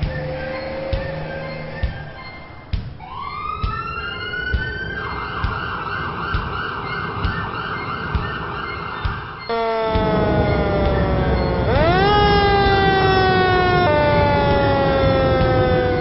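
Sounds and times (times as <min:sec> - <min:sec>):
low background beat: 0:03.6 - 0:16.0
cartoon siren warbling: 0:09.5 - 0:16.0.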